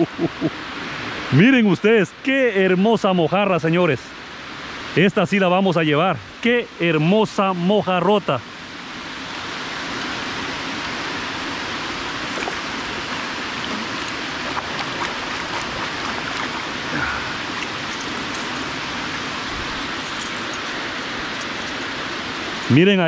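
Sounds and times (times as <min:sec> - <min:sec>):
water pouring down spillway: 0:09.7 - 0:23.0.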